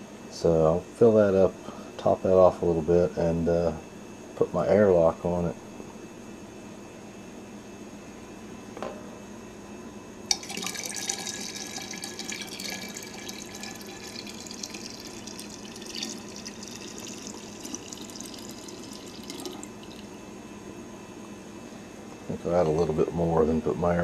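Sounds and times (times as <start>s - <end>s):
water pouring into glass neck: 10.3s - 20.1s.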